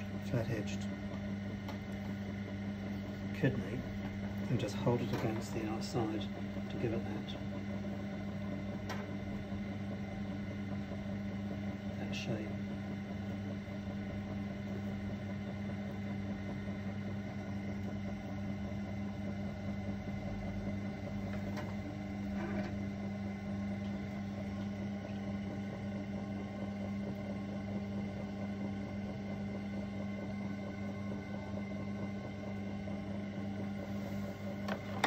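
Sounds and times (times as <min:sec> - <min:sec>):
potter's wheel motor humming: 0:00.0 - 0:35.0.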